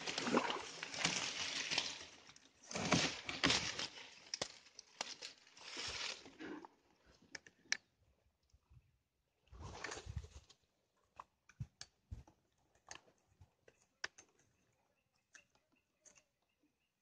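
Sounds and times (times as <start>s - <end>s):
grass and reeds scraping boat: 0.0s - 4.3s.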